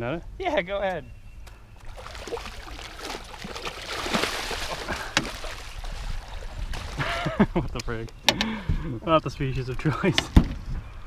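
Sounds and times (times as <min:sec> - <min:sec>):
water splashing and sloshing: 0:01.8 - 0:07.6.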